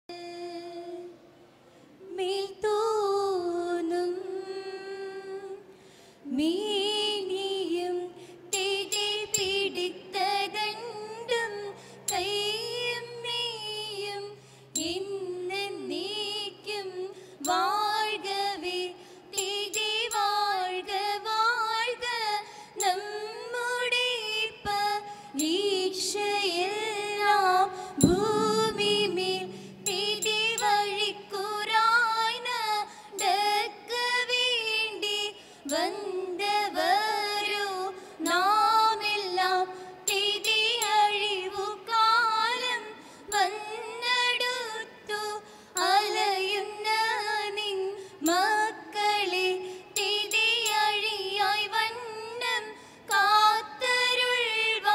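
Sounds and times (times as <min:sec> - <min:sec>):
women singing a melodic chant: 0:02.0 - 0:54.9
sharp knock: 0:28.0 - 0:30.4.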